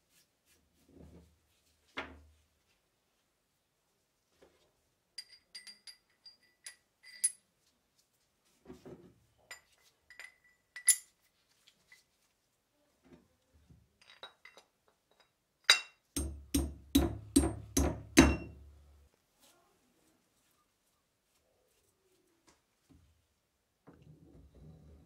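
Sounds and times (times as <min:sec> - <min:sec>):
hammer tapping on metal: 0:16.2 - 0:18.8.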